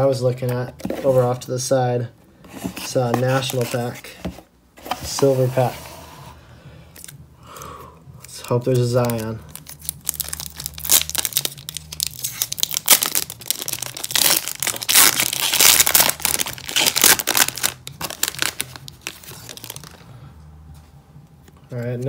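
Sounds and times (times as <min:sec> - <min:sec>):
cards rustling: 0:02.5 - 0:05.8, 0:08.2 - 0:20.1
foil wrapper ripping and crinkling: 0:08.7 - 0:20.0.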